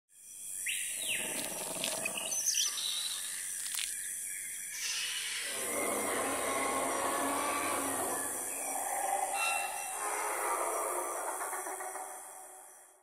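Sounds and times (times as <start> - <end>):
bird calls and chirps: 0.2 - 13.0.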